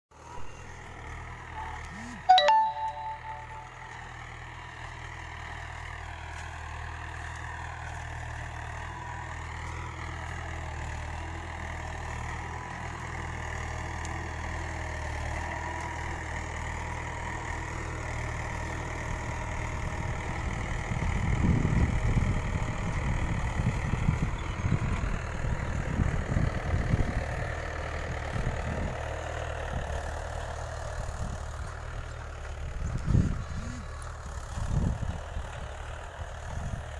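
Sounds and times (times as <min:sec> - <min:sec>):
tractor diesel engine running: 0:00.2 - 0:36.9.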